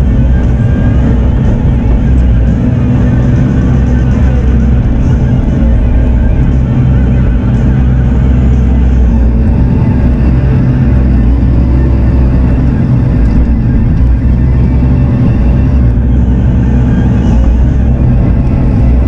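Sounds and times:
diesel engine running under load: 0:00.0 - 0:19.0
hydraulic whine: 0:00.0 - 0:19.0.

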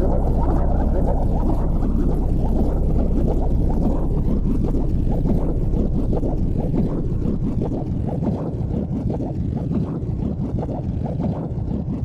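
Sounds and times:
wind buffeting microphone: 0:00.0 - 0:09.1.

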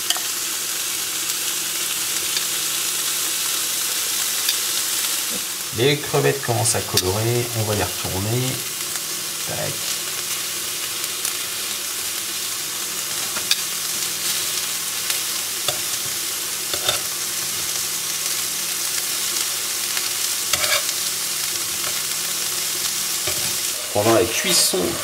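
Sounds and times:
shrimp sizzling in grill pan: 0:00.0 - 0:25.0
metal tongs clicking on pan: 0:00.1 - 0:00.3, 0:16.8 - 0:17.1.

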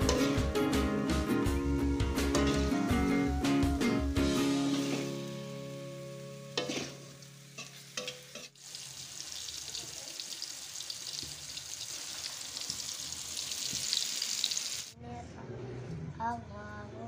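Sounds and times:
tofu sizzling in wok: 0:01.5 - 0:15.0.

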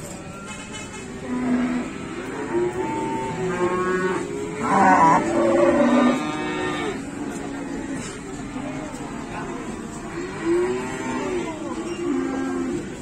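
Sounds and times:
cattle mooing: 0:01.2 - 0:08.1.

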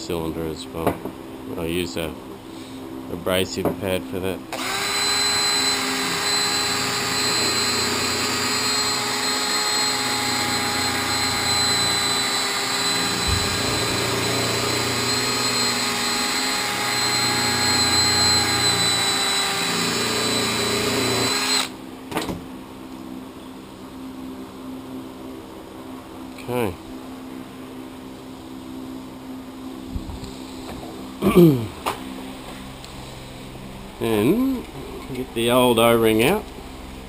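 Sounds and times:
cordless drill spinning abrasive pad: 0:04.5 - 0:21.8.

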